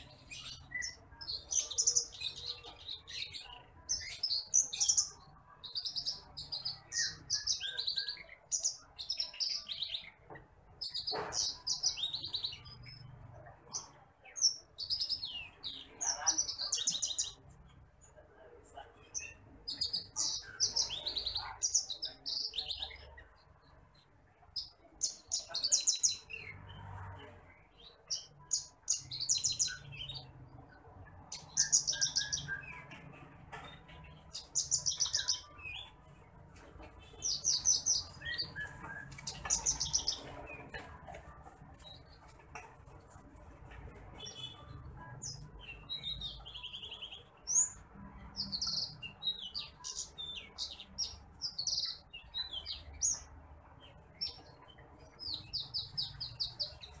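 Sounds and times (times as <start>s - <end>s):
bird chirping trills: 0.0s - 18.2s, 18.9s - 42.5s, 44.0s - 57.0s.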